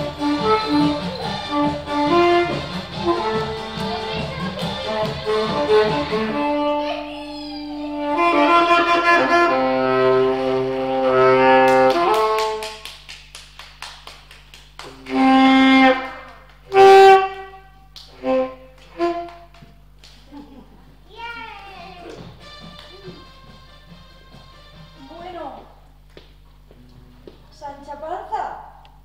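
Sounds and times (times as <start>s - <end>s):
saxophone playing: 0.0s - 12.7s, 14.9s - 19.6s, 21.9s - 25.2s.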